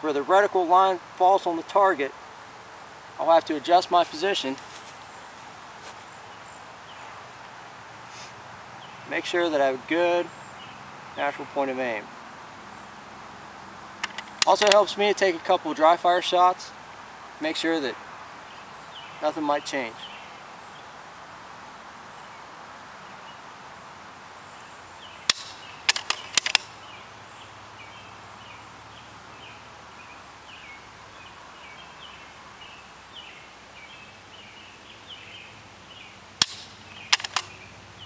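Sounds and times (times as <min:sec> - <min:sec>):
rifle action clicks: 0:14.0 - 0:14.8, 0:25.3 - 0:26.7, 0:36.4 - 0:37.5.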